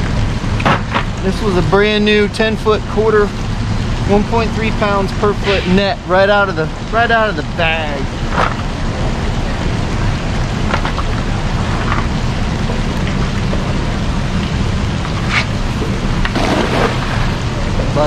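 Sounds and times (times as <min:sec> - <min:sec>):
steady low rumble: 0:00.0 - 0:18.0
net hitting water: 0:16.3 - 0:17.4.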